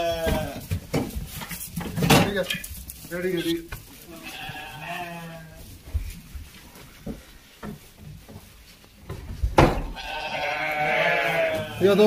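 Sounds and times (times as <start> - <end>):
sheep bleating: 0.0 - 0.6, 4.1 - 5.6, 9.9 - 12.0
knocks: 9.1 - 10.0.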